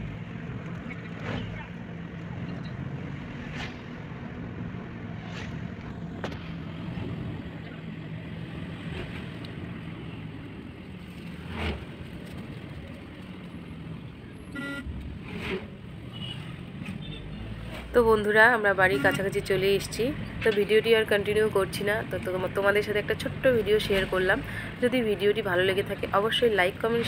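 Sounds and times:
road noise inside car: 0.0 - 27.0
brief tone: 14.6 - 14.9.

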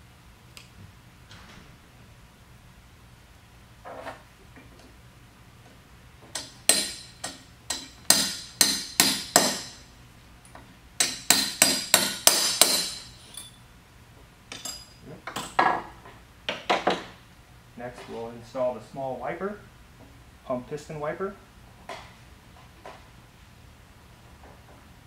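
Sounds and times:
hammer tapping metal punch: 6.3 - 9.8, 11.0 - 13.2.

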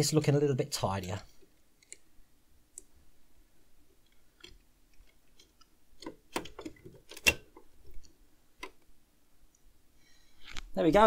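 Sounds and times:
model parts clicking and knocking: 4.0 - 8.9.

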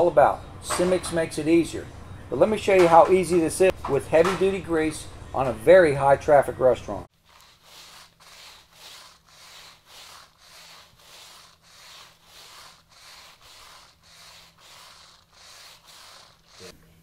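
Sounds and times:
brush scrubbing wet tiled floor: 7.2 - 16.7.

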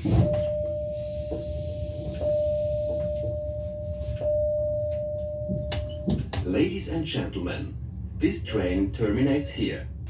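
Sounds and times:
electric train humming: 0.0 - 10.0
electronic warning tone: 0.2 - 6.1.

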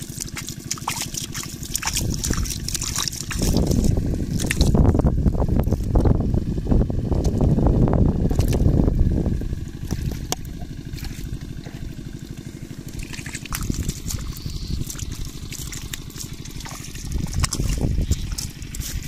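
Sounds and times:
water trickling and dripping: 0.0 - 3.8, 12.1 - 19.0
small splashy clicks: 0.0 - 4.8, 12.9 - 19.0
wet fish slithering and flapping: 0.0 - 6.1, 8.2 - 19.0
fast low throb: 0.0 - 19.0
low rumble: 0.0 - 19.0.

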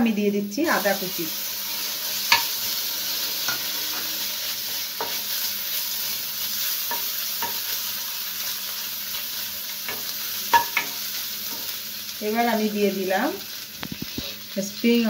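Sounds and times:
garlic sizzling in butter: 0.6 - 15.0
wooden spoon knocking on pan: 9.9 - 11.0.

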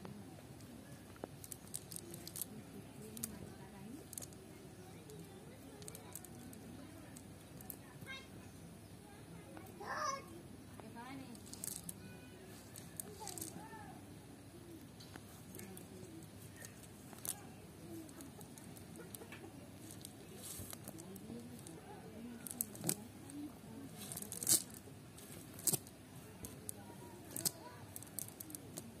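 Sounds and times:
net clicks and rustles: 0.6 - 8.2, 10.9 - 13.9, 14.8 - 29.0.

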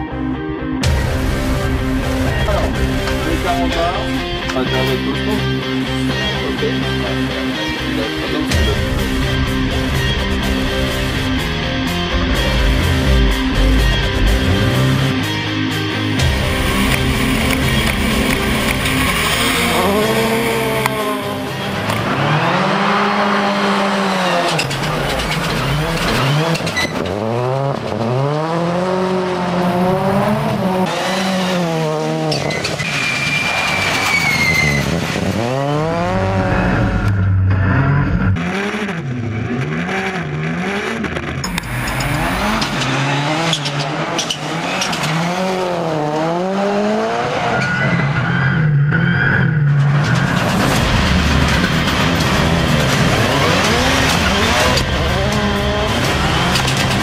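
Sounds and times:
race car engine revving: 0.8 - 57.0
tyre squeal: 24.5 - 27.1, 32.3 - 35.2, 47.4 - 50.5.

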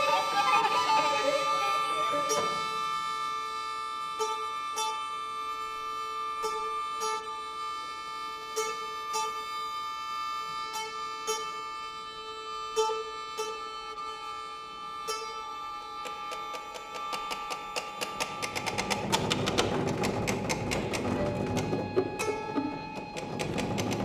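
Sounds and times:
held high string notes: 0.0 - 24.0
plucked notes: 15.9 - 24.0.

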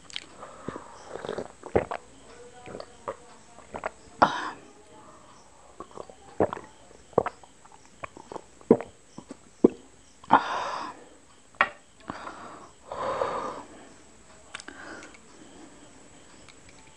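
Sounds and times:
swallowing clicks and gulps: 0.0 - 10.4, 14.5 - 15.4
long breathy exhales: 12.1 - 13.9.

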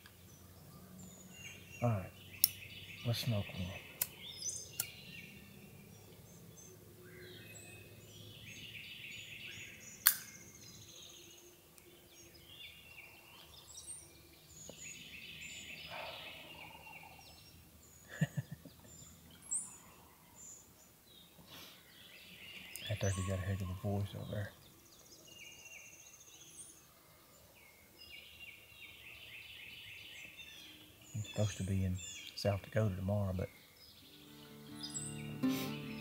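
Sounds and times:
songbirds chirping: 0.0 - 36.0
sharp click: 10.0 - 10.4.

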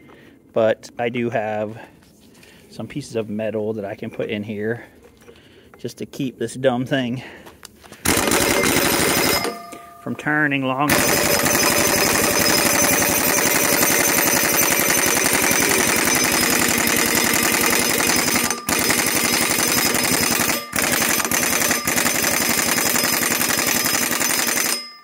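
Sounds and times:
pneumatic impact wrench hammering: 8.0 - 9.9, 10.9 - 24.8.

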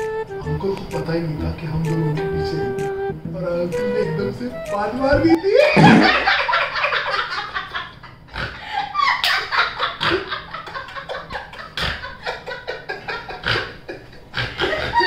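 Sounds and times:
people laughing: 5.3 - 15.0.

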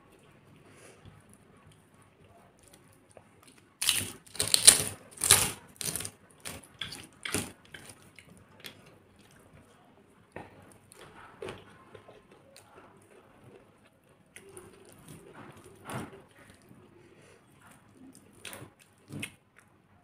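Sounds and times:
crunching crisp cracker: 2.6 - 9.6.

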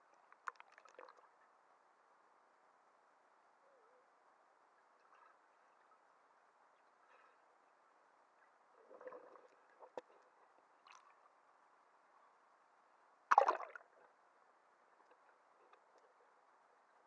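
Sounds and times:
muffled water sloshing and gurgling: 8.8 - 11.4, 13.3 - 14.2.

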